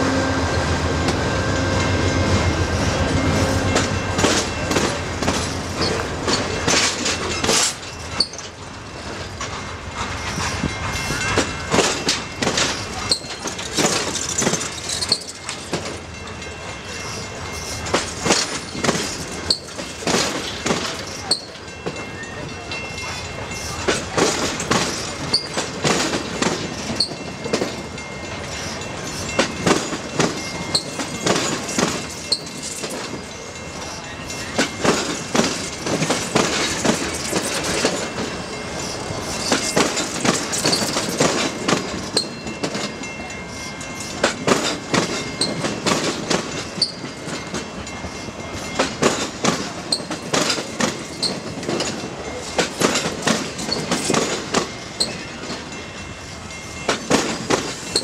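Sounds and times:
train wheels clacking over rail joints: 0:01.0 - 0:55.8, 0:56.5 - 0:58.0
high wheel squeal: 0:08.0 - 0:08.5, 0:24.9 - 0:25.6, 0:46.8 - 0:47.2.

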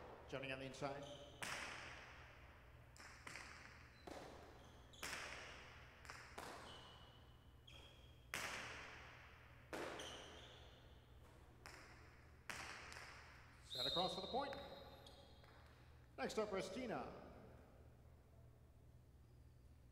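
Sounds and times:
ball hitting walls with echo: 0:00.0 - 0:15.8
short high squeaks: 0:13.7 - 0:15.4.

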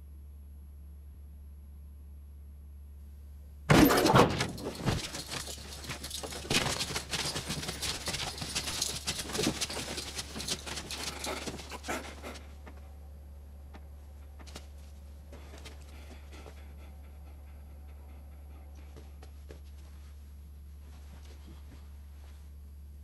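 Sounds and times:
trapdoor bang: 0:03.7 - 0:05.3
rattling and scuffling: 0:03.7 - 0:13.0, 0:13.7 - 0:22.6.

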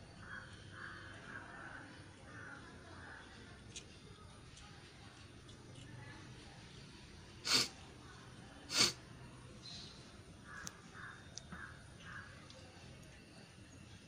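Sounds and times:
cat hissing: 0:07.4 - 0:07.8, 0:08.7 - 0:09.0.

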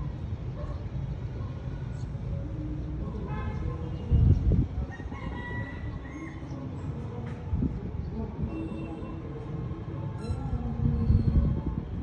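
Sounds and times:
low rumble of traffic: 0:00.0 - 0:12.0.

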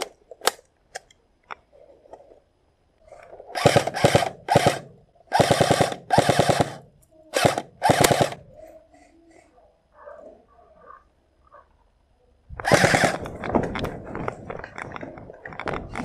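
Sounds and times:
airsoft guns firing in bursts: 0:03.6 - 0:08.5, 0:12.6 - 0:13.3.

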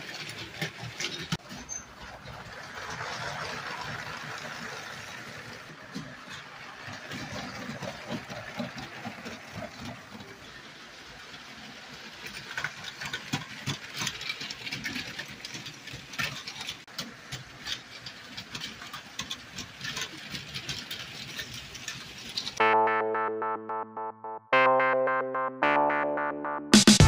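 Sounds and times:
toy train motor whir: 0:00.0 - 0:22.6
wheels clicking over rail joints: 0:00.0 - 0:22.6.

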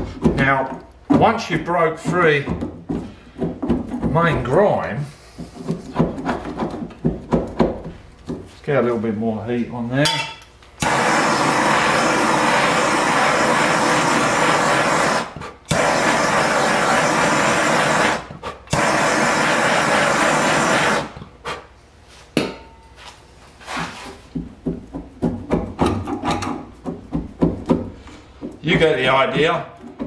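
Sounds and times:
blowtorch flame hissing: 0:10.8 - 0:21.7.

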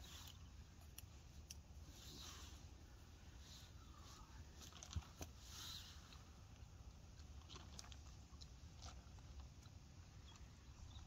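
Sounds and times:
chewing: 0:07.1 - 0:11.0.

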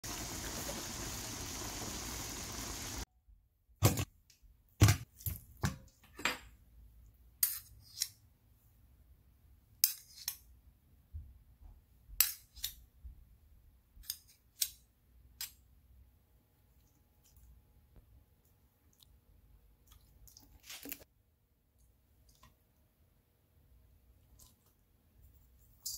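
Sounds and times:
chicken sizzling in a pan: 0:00.0 - 0:03.0.

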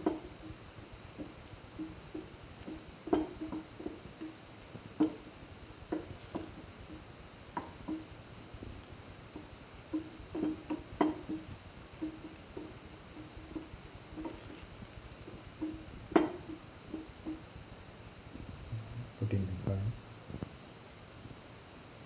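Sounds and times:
spatula knocking frying pan: 0:01.2 - 0:04.4, 0:09.4 - 0:14.6, 0:15.6 - 0:17.4.

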